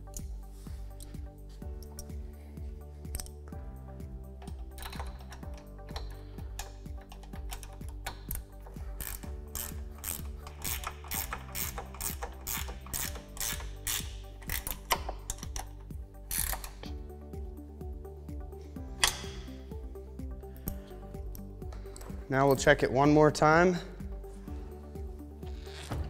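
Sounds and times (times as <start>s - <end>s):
background music: 0.0s - 26.0s
ratchet wrench clicking: 4.4s - 17.0s.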